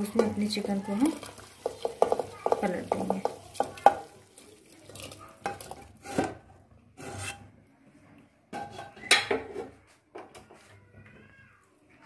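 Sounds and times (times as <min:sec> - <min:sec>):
spoon scraping a pan: 0:00.0 - 0:04.2, 0:05.0 - 0:07.6, 0:08.6 - 0:09.8.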